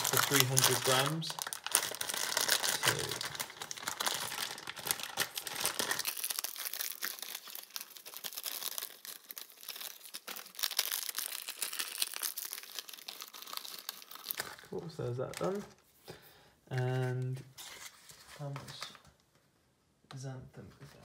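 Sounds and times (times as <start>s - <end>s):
plastic packet crinkling: 0.0s - 15.8s.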